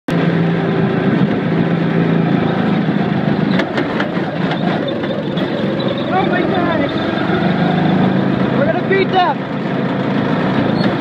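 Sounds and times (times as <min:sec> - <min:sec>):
go-kart engine running: 0:00.1 - 0:11.0
sharp clicks or rattles: 0:03.5 - 0:05.8.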